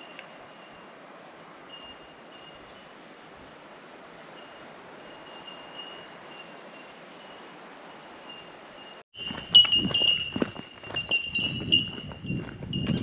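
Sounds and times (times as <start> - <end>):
outdoor background hiss: 0.0 - 9.1
footsteps crunching on dry ground: 9.2 - 13.0.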